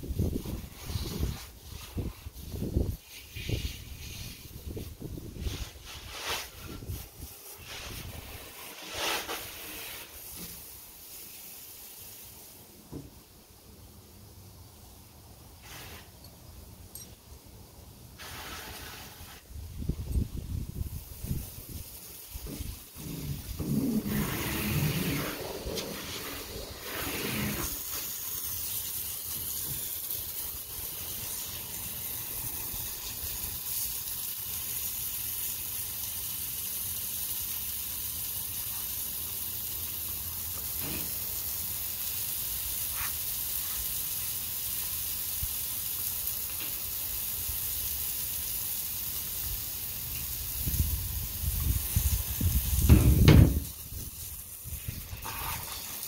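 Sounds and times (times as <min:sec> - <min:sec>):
low rumbling and rustling: 0:18.5 - 0:27.6, 0:50.8 - 0:55.7.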